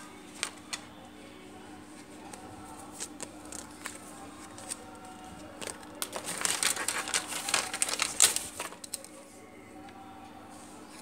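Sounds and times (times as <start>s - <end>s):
plastic bag crinkling: 5.6s - 9.1s.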